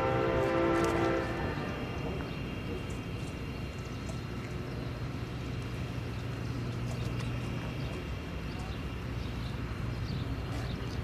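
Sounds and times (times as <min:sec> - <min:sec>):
distant diesel locomotives droning: 0:00.0 - 0:11.0.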